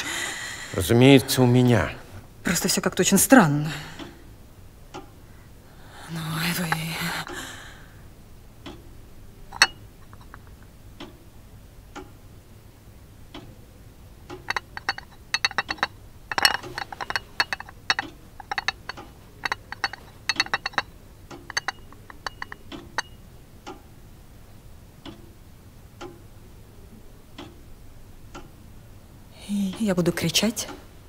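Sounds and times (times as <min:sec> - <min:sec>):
mechanical clock ticking: 0:03.9 - 0:05.3, 0:08.5 - 0:12.4, 0:13.2 - 0:24.2, 0:24.8 - 0:26.5, 0:27.3 - 0:28.7.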